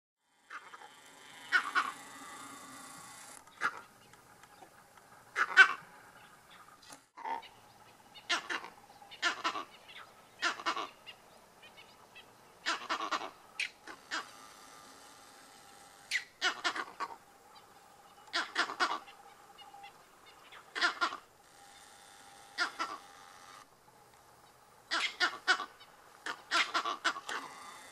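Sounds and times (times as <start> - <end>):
monkeys barking alarm calls: 0.5 - 2.0, 5.3 - 14.4, 16.1 - 21.3, 22.6 - 23.1, 24.9 - 27.6.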